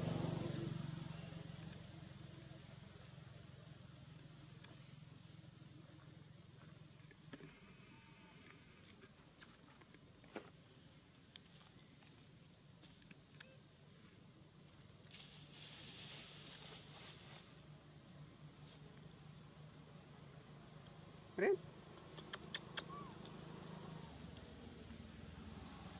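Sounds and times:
insects droning: 0:00.0 - 0:25.9
faint ticks and rustles: 0:05.9 - 0:14.3, 0:15.0 - 0:17.8.

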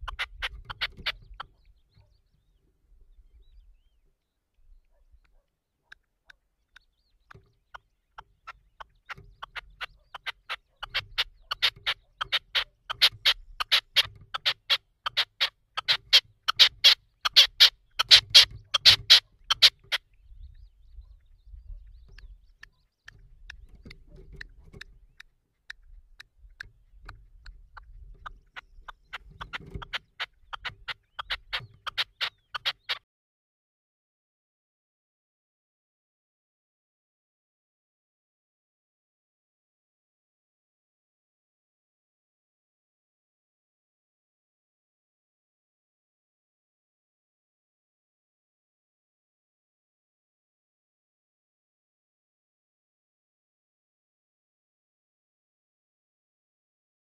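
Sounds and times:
partridge calling: 0:00.0 - 0:33.0.

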